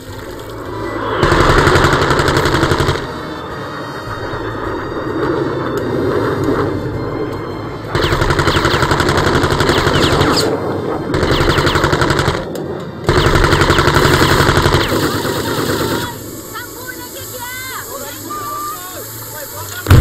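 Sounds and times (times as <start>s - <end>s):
jet roar: 0.0s - 20.0s
machine gun firing bursts: 1.2s - 3.2s, 8.0s - 10.5s, 11.1s - 12.5s, 13.1s - 16.2s.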